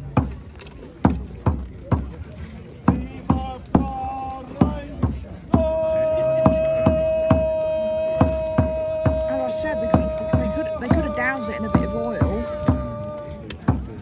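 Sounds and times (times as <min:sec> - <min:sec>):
drum beating steadily: 0:00.0 - 0:14.0
horn long note: 0:05.6 - 0:13.3.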